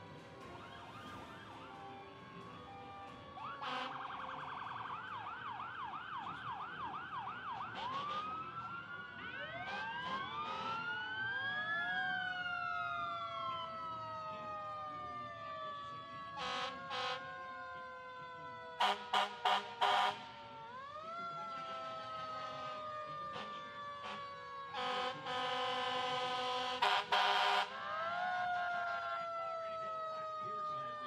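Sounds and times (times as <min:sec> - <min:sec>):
sirens wailing: 0:00.0 - 0:31.0
horn blasts: 0:18.8 - 0:20.3, 0:21.6 - 0:27.7.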